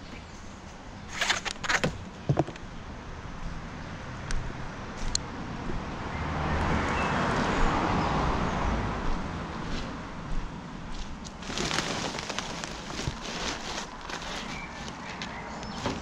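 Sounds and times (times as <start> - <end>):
car passing: 5.9 - 10.2.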